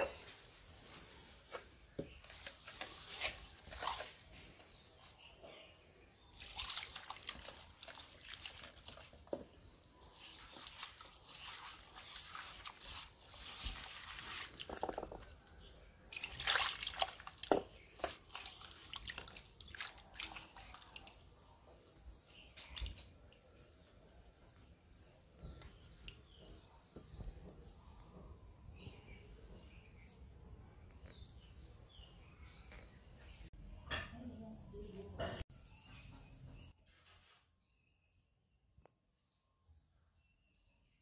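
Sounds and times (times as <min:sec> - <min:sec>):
hands squelching wet fish: 0:02.3 - 0:04.3, 0:06.3 - 0:09.3, 0:10.0 - 0:21.5, 0:22.2 - 0:24.8.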